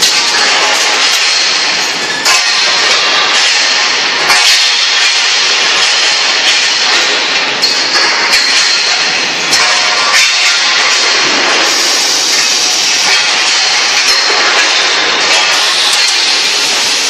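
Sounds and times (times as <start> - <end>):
steel tubes clanking: 0.0 - 17.0
machinery hissing: 11.5 - 14.0.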